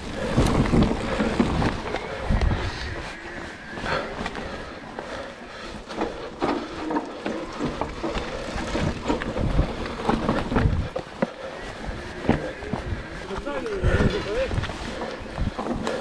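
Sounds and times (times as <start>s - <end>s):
bike rattling and knocking: 0.0s - 2.8s, 3.8s - 16.0s
wind on microphone: 0.0s - 4.6s, 8.4s - 11.0s
bike tyre noise: 0.0s - 16.0s.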